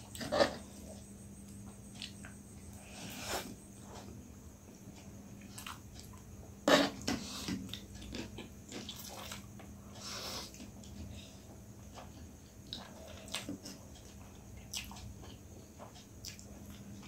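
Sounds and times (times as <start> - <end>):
chewing: 5.4 - 6.3, 6.9 - 17.0.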